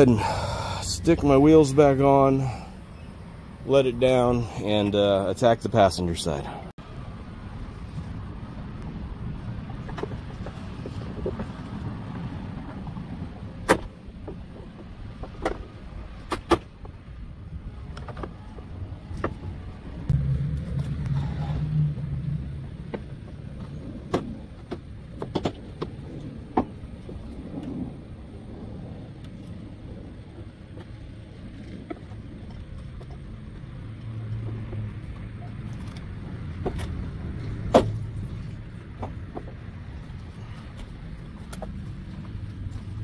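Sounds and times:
low rumble: 17.0s - 43.0s.

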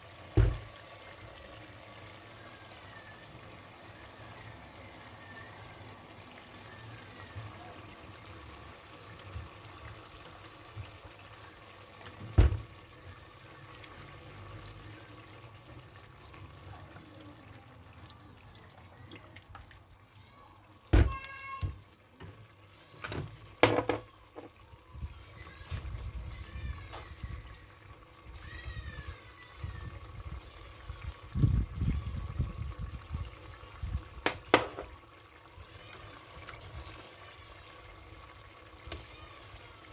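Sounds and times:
sauce pouring into a pot: 0.0s - 39.9s
bottle knocking on pot: 23.6s - 24.5s, 34.3s - 34.9s.

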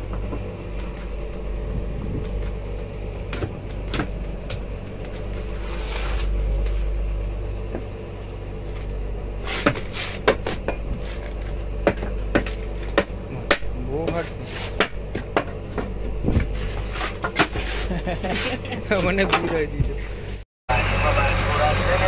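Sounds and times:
boat engine droning: 0.0s - 22.0s.

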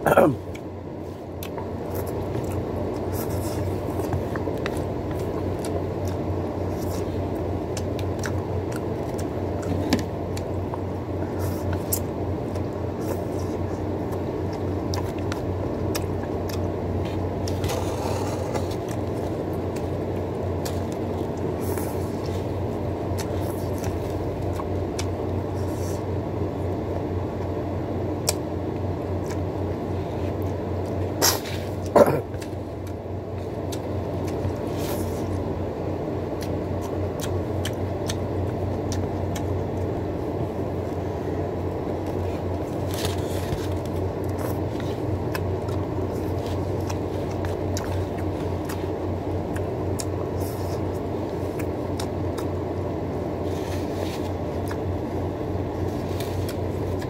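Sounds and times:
steady low hum: 0.0s - 57.0s
chewing smacks: 1.3s - 26.1s, 28.2s - 28.5s, 29.1s - 35.5s, 36.3s - 41.0s, 41.6s - 57.0s.

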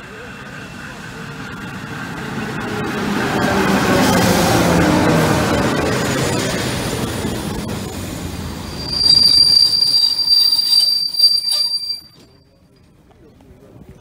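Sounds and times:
train coaches rumbling past: 0.0s - 13.7s
high-pitched brake squeal: 8.6s - 12.6s.

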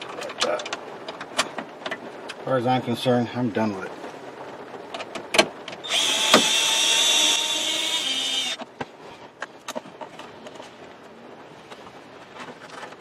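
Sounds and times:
cordless drill driving a screw: 5.8s - 8.6s.

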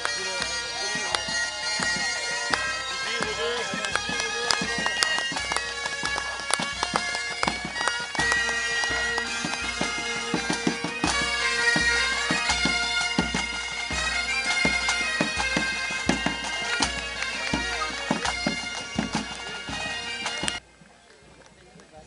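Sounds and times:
bagpipes playing a tune: 0.0s - 20.6s
drum beats: 0.0s - 20.6s.

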